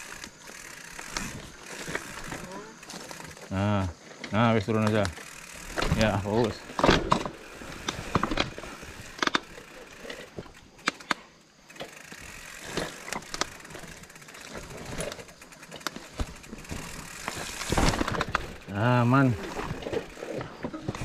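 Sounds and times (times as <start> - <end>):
bike clattering over bumps: 0.0 - 21.0
bike tyres rolling on a trail: 0.0 - 21.0.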